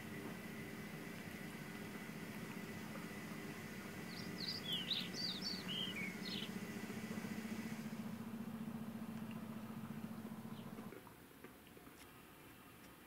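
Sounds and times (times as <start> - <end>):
steady low hum: 0.0 - 11.0
songbird twittering: 3.9 - 10.9.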